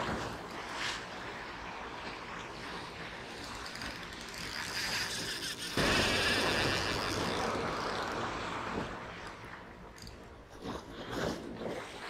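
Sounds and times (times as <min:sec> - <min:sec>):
surf washing on rocks: 0:00.0 - 0:12.0
fishing reel ratcheting and clicking: 0:03.4 - 0:07.4.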